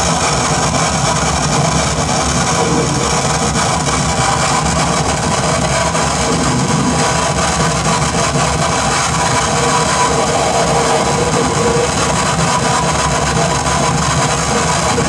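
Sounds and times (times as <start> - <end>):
harsh noise music: 0.0 - 15.0.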